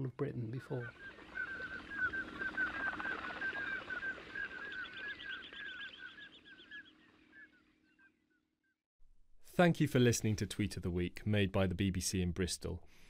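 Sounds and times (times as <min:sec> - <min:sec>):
flock of ducks whistling: 0:00.7 - 0:08.1.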